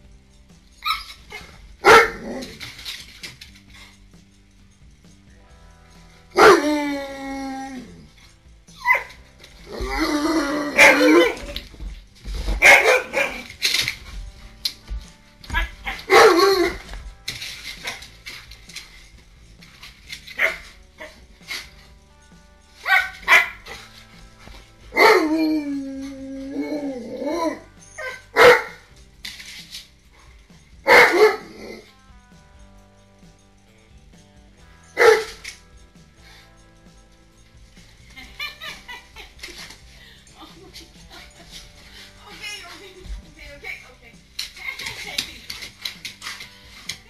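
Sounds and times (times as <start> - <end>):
dog yipping: 0.8 - 2.4, 6.4 - 6.9, 8.7 - 11.6, 12.6 - 13.5, 15.5 - 16.9, 20.4 - 21.2, 22.8 - 23.8, 27.5 - 28.8, 30.9 - 31.7, 35.0 - 35.4
dog barking: 1.8 - 2.5, 6.4 - 6.7, 8.8 - 9.1, 10.7 - 11.6, 12.6 - 13.5, 15.6 - 16.9, 20.4 - 21.2, 22.8 - 23.8, 24.9 - 25.3, 28.0 - 28.9, 30.8 - 31.7, 35.0 - 35.4
dog howling: 6.4 - 8.1, 9.7 - 11.6, 25.0 - 27.7.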